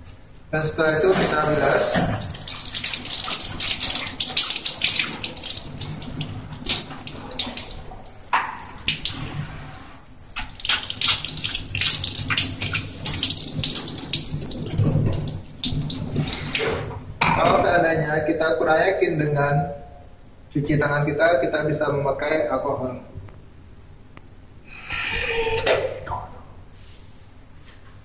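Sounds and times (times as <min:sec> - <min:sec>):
tap water running into sink: 0:01.0 - 0:16.9.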